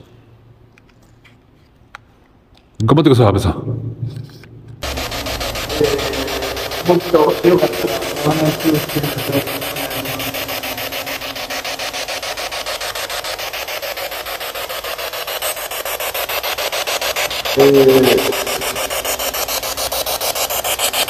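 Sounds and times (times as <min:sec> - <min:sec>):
pulsing radio hiss: 0:04.8 - 0:21.0.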